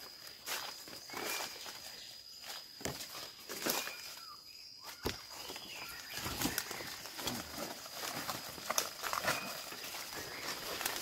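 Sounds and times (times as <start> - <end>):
footsteps through dry leaves: 0.0 - 11.0
undergrowth rustling: 0.0 - 11.0.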